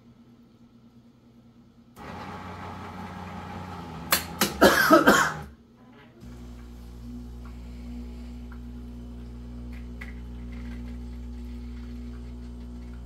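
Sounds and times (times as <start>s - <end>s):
person coughing: 4.6s - 5.5s.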